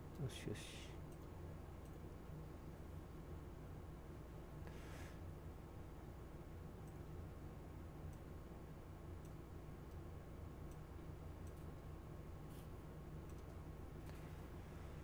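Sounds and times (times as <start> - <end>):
steady low hum: 0.0 - 15.0
faint computer mouse clicks: 13.2 - 14.2.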